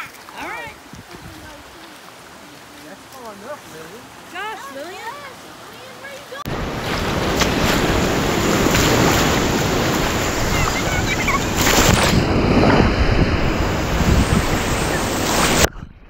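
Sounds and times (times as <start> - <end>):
water splashing: 0.0 - 15.7
wind buffeting microphone: 0.7 - 1.8, 6.5 - 16.0
surf breaking: 1.0 - 15.7.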